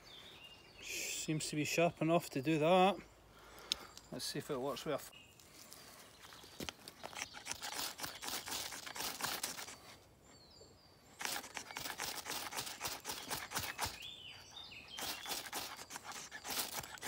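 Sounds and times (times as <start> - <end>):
bird chirping: 0.0 - 17.0
knife scraping ferro rod: 7.0 - 9.9, 11.2 - 14.1, 14.9 - 17.0.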